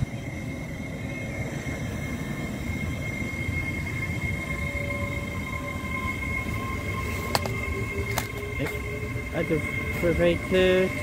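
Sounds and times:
train high whine: 0.0 - 11.0
train wheels rumbling on rail: 0.0 - 11.0.

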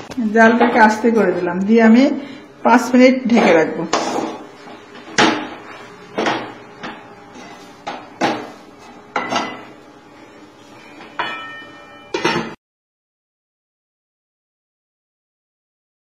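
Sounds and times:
spoon scraping and knocking a pan: 6.2 - 9.7.

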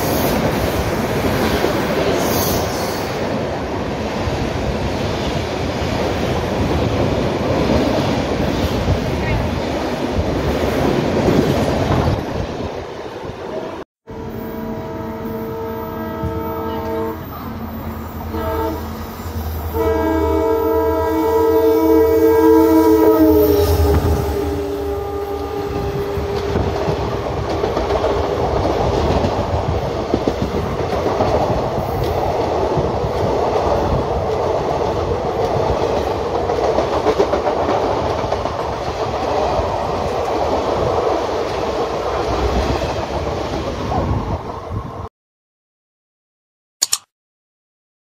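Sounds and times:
train coaches rumbling and clacking: 0.0 - 13.8, 15.5 - 45.0
locomotive horn: 14.1 - 17.6, 18.2 - 26.8.

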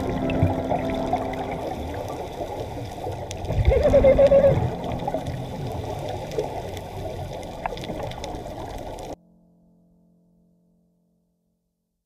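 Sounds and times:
exhaled bubbles: 0.0 - 9.2
underwater rushing water: 0.0 - 9.2
faint clicks: 2.5 - 9.2.

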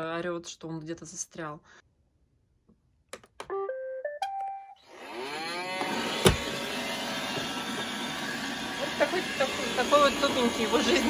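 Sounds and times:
robot vacuum motor whine: 4.8 - 11.0.

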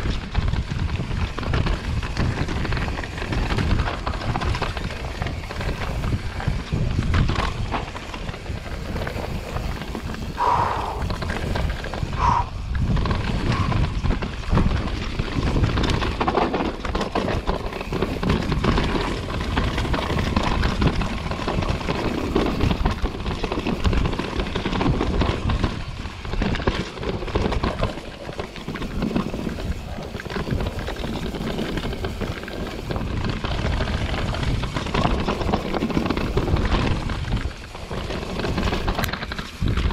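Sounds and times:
bike rattling and knocking: 0.0 - 39.9
tyres rumbling over dirt: 0.0 - 39.9.

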